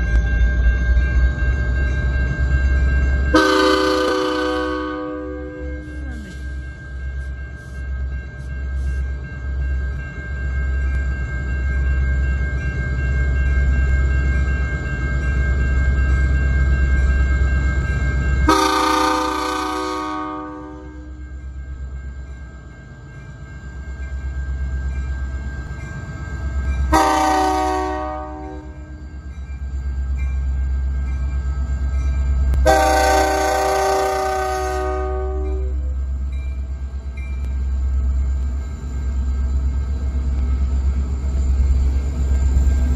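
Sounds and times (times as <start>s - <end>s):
faint crossing bell ringing: 0.0s - 42.9s
locomotive air horn blasts: 3.4s - 5.6s, 18.5s - 21.0s, 26.9s - 28.7s, 32.6s - 35.7s.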